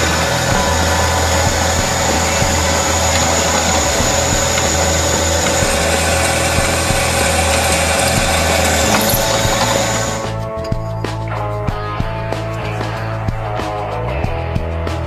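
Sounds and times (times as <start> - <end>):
drill press cutting steel: 0.0 - 10.4.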